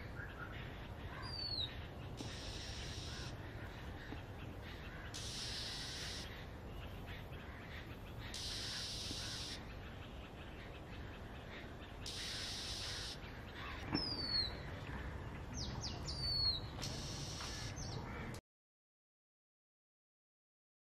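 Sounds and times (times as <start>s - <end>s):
high even hiss: 2.2s - 3.4s, 5.1s - 6.4s, 8.2s - 9.6s, 12.0s - 13.2s, 16.8s - 17.8s.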